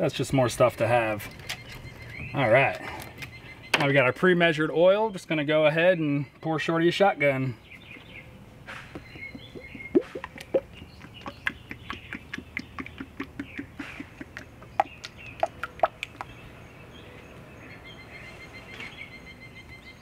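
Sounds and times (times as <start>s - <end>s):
motor oil glugging into funnel: 8.9s - 16.4s.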